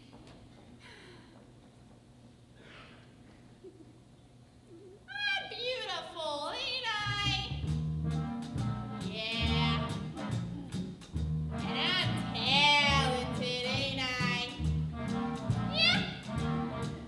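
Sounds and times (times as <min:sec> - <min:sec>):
upright bass plucking: 0:07.3 - 0:17.0
woman singing: 0:09.2 - 0:10.0, 0:11.7 - 0:14.6.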